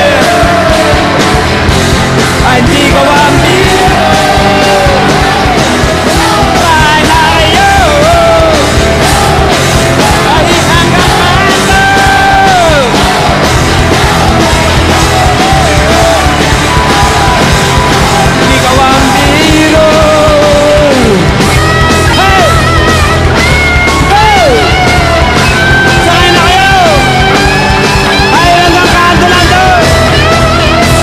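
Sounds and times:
drums: 0.0 - 31.0
electric guitars: 0.0 - 31.0
person singing into microphone: 2.4 - 22.7.

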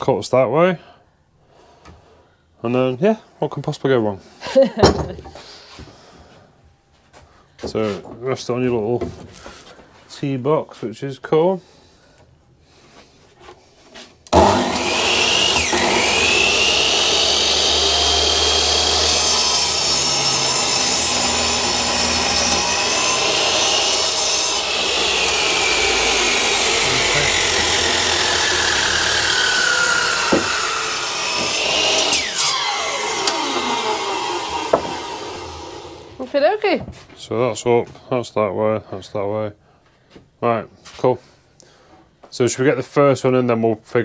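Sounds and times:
power saw cutting timber: 14.3 - 36.6.

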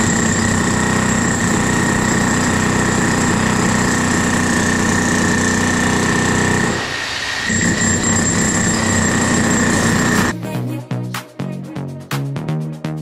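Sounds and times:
power tool cutting concrete: 0.0 - 10.3.

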